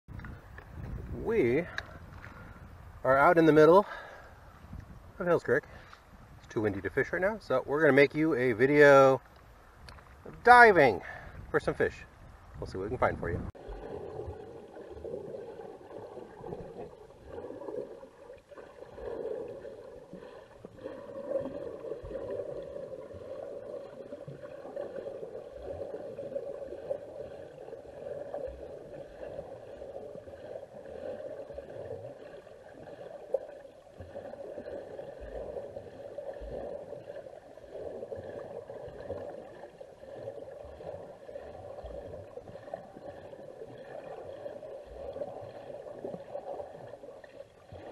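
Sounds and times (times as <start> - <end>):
soft low thumps: 0.1 - 3.0
muffled underwater water noise: 0.1 - 47.9.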